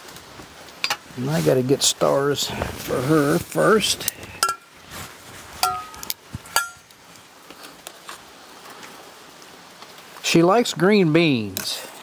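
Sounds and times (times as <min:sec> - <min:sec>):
faint steady hiss: 0:00.0 - 0:12.0
metal pot and tongs clinking: 0:04.4 - 0:04.6, 0:05.6 - 0:06.8.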